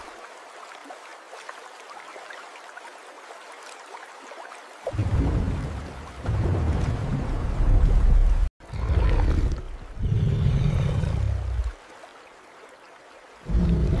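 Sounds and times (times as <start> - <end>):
steady rain hiss: 5.0 - 14.0.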